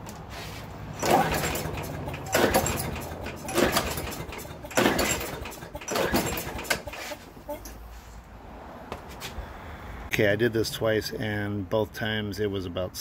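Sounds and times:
engine cranking without firing: 0.9 - 7.8
recoil starter cord pulls: 1.0 - 7.2.

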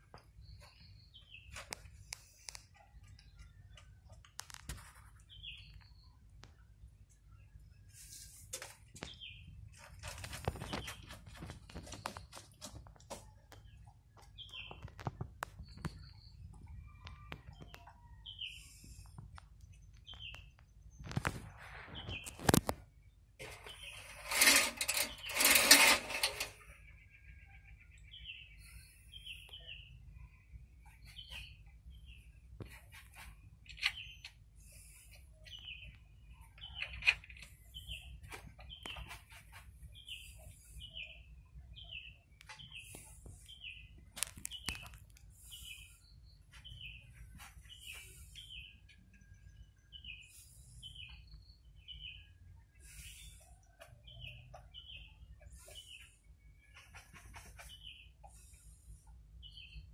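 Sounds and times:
small bird chirping: 13.2 - 59.9.

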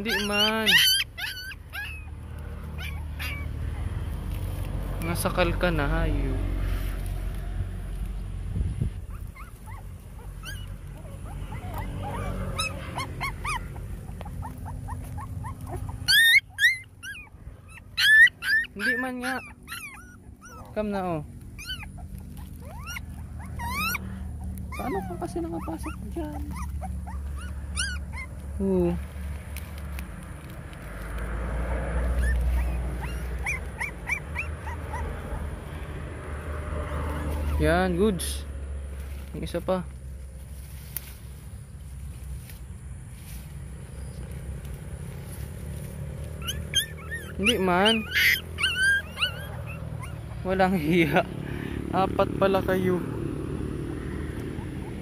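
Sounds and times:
puppies crying: 0.0 - 6.0, 9.0 - 30.0, 31.0 - 37.9, 43.9 - 55.0.

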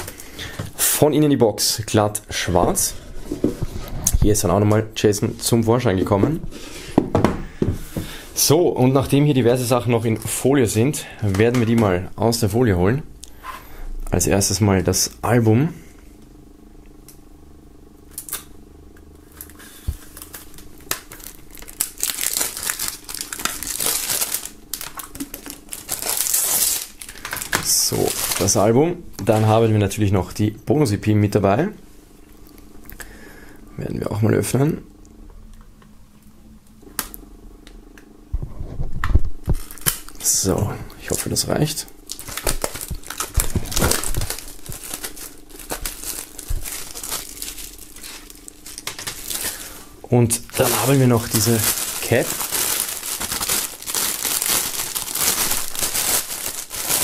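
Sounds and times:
shrink-wrap crinkling: 19.2 - 29.7, 39.4 - 57.0.

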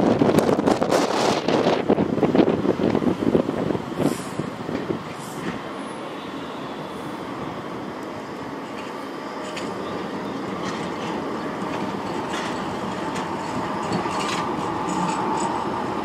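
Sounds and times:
tram wheels clicking over rail joints: 0.0 - 5.8, 8.0 - 16.0
tram rumble and whine: 0.0 - 16.0.

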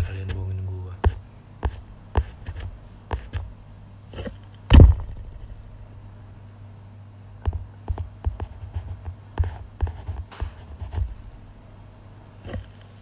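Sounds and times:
faint low hum: 0.0 - 13.0
heavy thump: 4.7 - 5.7.

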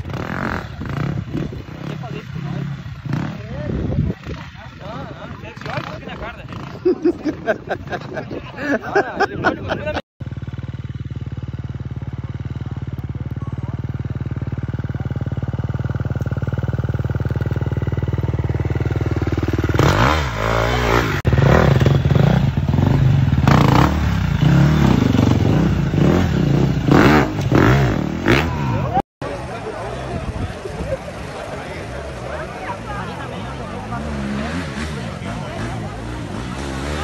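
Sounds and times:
dirt bike engine revving: 0.0 - 7.1, 13.4 - 29.0, 32.0 - 37.0.

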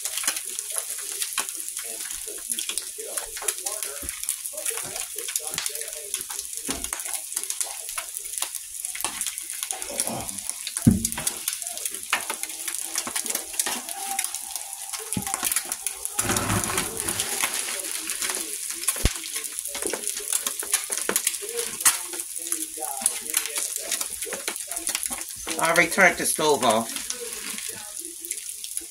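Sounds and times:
eggs sizzling in grease: 0.0 - 28.9
plates clattering: 15.2 - 19.1.

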